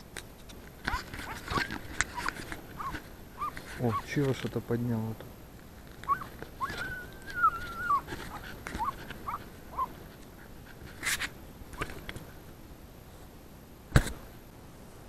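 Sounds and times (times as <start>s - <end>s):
dog whining and yelping: 0.9s - 4.2s, 6.0s - 10.0s.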